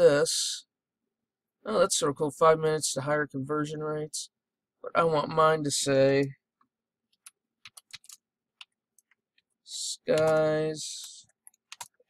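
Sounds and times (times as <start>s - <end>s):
keyboard typing: 7.1s - 9.5s, 10.1s - 12.0s.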